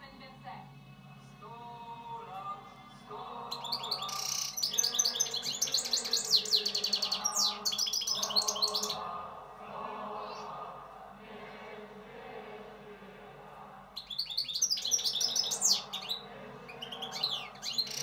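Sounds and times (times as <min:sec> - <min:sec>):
bird singing high chirps and trills: 0:03.5 - 0:09.0, 0:14.0 - 0:18.0.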